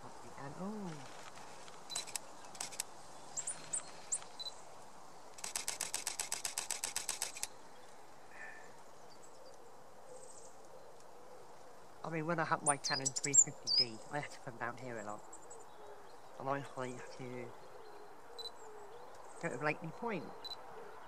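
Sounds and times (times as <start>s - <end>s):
small birds chirping: 0.0s - 21.0s
camera shutter firing: 5.4s - 7.5s.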